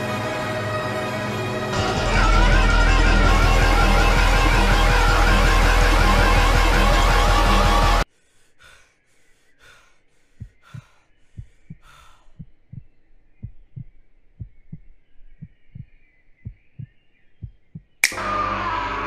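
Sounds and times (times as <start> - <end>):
heavy breathing: 8.0 - 12.6
heartbeat thumps: 10.4 - 18.0.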